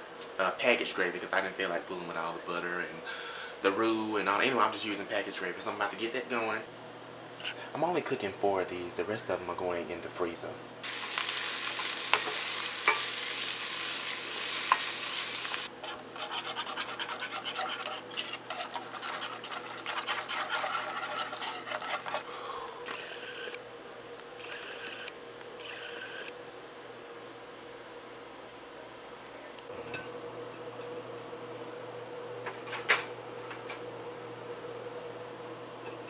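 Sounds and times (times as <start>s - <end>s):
sausage sizzling in frying pan: 10.8s - 15.7s
rapid scraping strokes: 15.6s - 22.3s
wooden spoon scraping pan: 15.8s - 22.3s.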